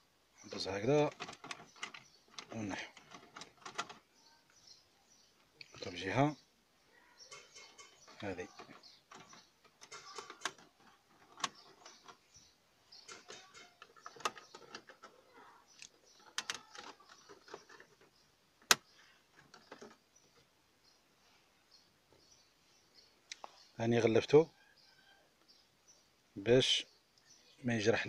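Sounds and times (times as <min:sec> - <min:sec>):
plastic trim clicks and rustles: 0:01.0 - 0:04.0, 0:07.4 - 0:12.3, 0:13.0 - 0:15.2, 0:15.8 - 0:20.0.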